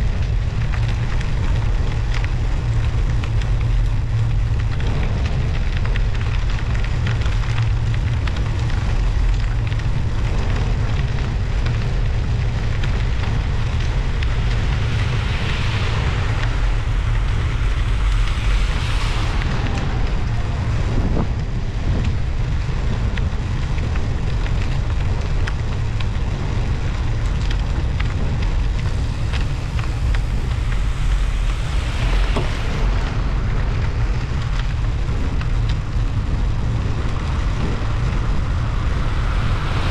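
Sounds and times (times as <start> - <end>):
wind buffeting microphone: 0.0 - 39.9
studded tyres hissing on snow: 9.8 - 39.9.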